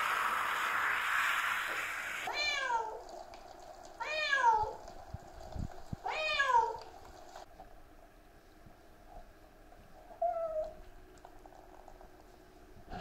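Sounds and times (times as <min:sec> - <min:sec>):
hand shower spraying water: 0:00.0 - 0:03.0
cat meowing: 0:10.2 - 0:10.8.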